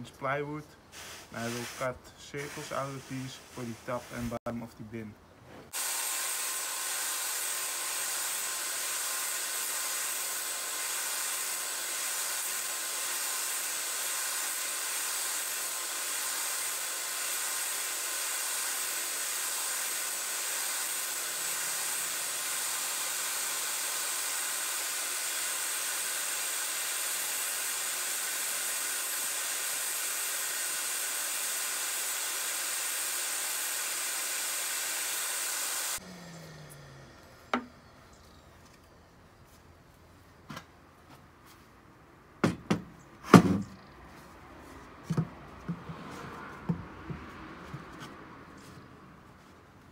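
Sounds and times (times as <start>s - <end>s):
table saw whining: 5.7s - 38.8s.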